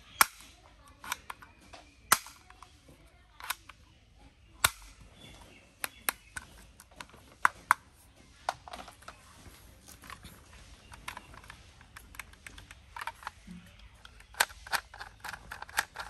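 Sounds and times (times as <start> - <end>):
plastic clicks: 0.0 - 3.9, 4.5 - 16.0
toy pistol sharp snap: 0.1 - 1.2, 2.1 - 2.6, 4.6 - 5.0.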